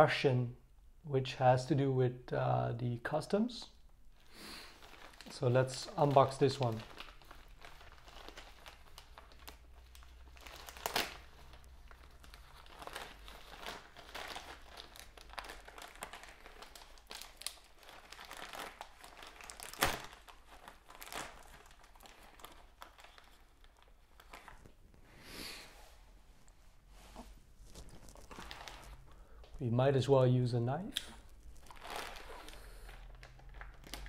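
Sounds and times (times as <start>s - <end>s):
plastic mailer bag crinkling: 4.2s - 25.0s, 27.4s - 29.6s, 31.1s - 34.0s
sharp plastic crackles: 4.2s - 25.1s, 27.5s - 29.6s, 30.8s - 34.0s.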